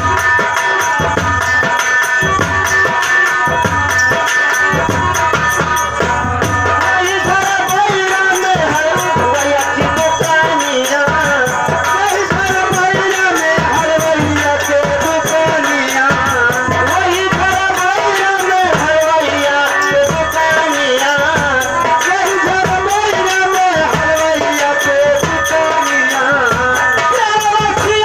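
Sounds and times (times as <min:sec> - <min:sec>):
fast high ticking percussion: 0:00.0 - 0:28.0
person singing into microphone: 0:00.0 - 0:28.0
steady drum beat: 0:00.0 - 0:28.0.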